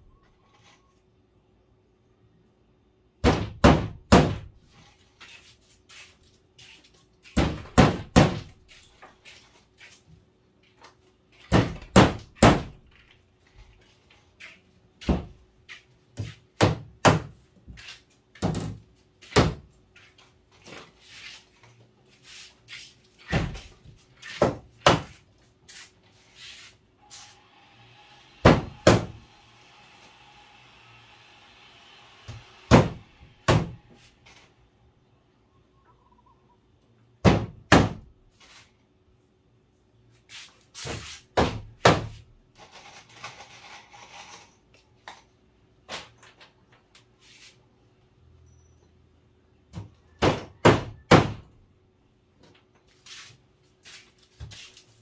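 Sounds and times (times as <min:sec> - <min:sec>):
hammer knocking on wood: 0:07.4 - 0:08.5.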